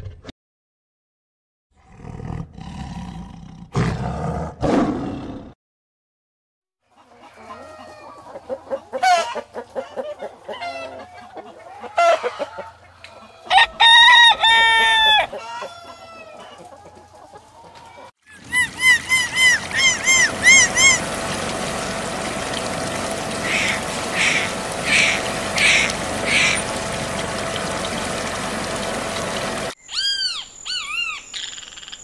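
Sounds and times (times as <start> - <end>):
rooster clucking: 6.9 - 28.3
rooster crowing: 11.8 - 16.5.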